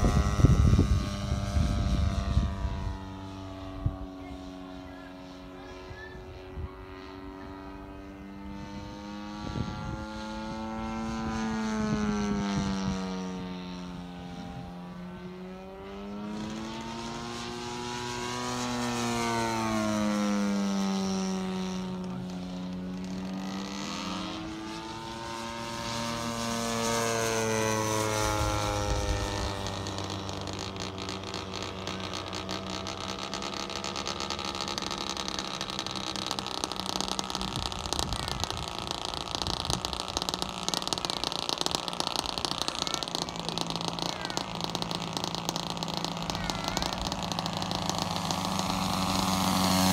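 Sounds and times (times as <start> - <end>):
model plane motor droning: 0.0 - 49.9.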